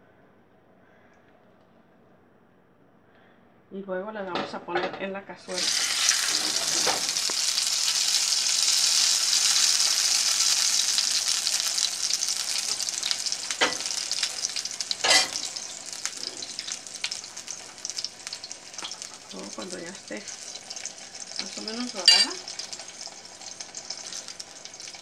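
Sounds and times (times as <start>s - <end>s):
sharp oil crackles: 5.5s - 25.0s
tortilla sizzling in hot oil: 5.5s - 25.0s.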